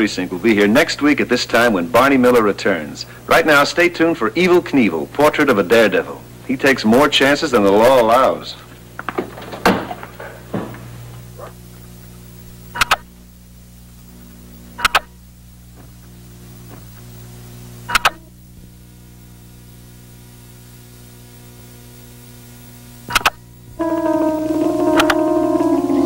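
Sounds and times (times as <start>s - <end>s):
electrical hum: 0.0s - 26.0s
sharp double clicks: 14.8s - 15.1s, 23.1s - 23.4s.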